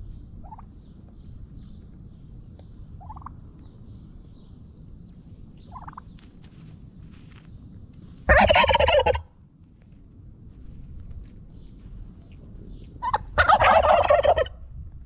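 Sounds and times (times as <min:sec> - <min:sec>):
turkey gobbling: 0:03.0 - 0:03.3, 0:08.3 - 0:09.3, 0:13.0 - 0:14.6.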